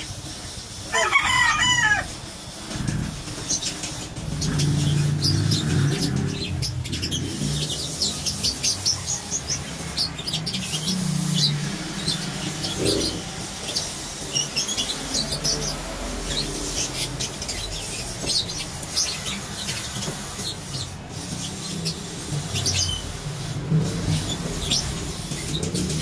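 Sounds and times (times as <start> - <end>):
small birds chirping: 0.0 - 26.0
rooster crowing: 0.9 - 2.2.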